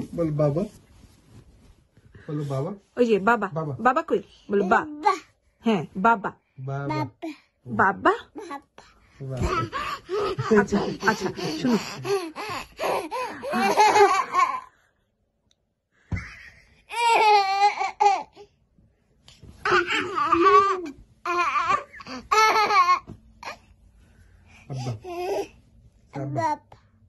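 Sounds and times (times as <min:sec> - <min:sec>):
toddler girl laughing: 0:11.1 - 0:14.6.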